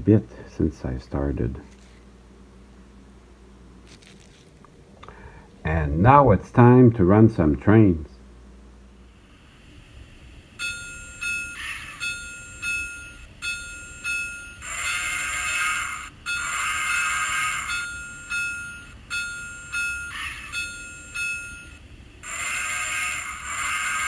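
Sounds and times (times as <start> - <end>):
locomotive bell ringing: 10.6 - 24.0.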